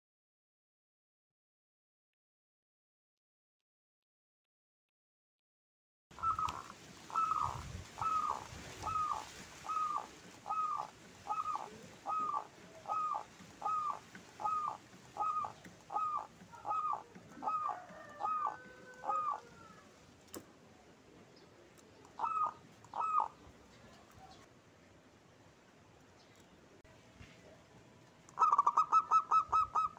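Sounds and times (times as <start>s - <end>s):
dove cooing: 6.2s - 20.0s, 22.2s - 23.4s, 28.3s - 29.9s.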